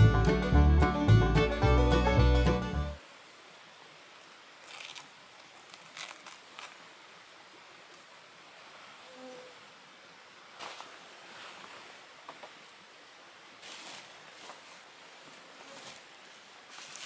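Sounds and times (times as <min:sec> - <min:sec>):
banjo bluegrass music: 0:00.0 - 0:03.0
soft rustles: 0:10.6 - 0:12.0, 0:13.6 - 0:16.1, 0:16.7 - 0:17.0.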